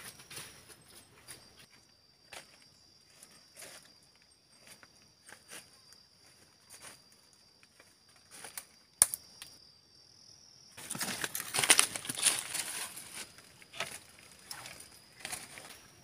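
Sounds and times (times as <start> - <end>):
twig snapping: 9.0 - 9.5
footsteps crunching dry leaves: 10.8 - 15.8
undergrowth rustling: 10.8 - 16.0.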